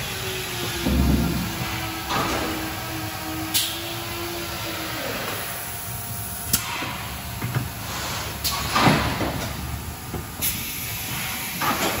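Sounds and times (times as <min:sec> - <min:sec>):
loud mechanical clunk: 0:00.6 - 0:03.8, 0:08.4 - 0:09.6
machine hissing steadily: 0:10.3 - 0:12.0.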